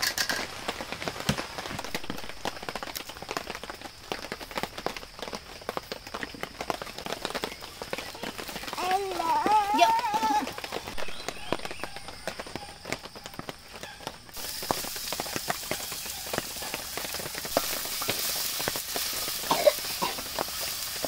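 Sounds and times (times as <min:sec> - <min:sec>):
wok and utensils clattering: 0:00.0 - 0:00.7
onion sizzling in hot oil: 0:14.3 - 0:21.0.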